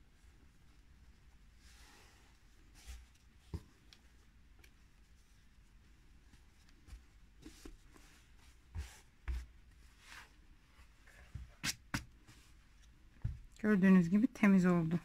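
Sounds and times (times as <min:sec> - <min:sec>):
hands rustling on fabric: 0:00.0 - 0:13.5
soft thumps: 0:13.2 - 0:13.6.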